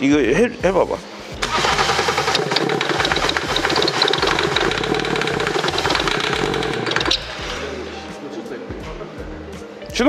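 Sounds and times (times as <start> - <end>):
diesel engine running: 1.4 - 7.3.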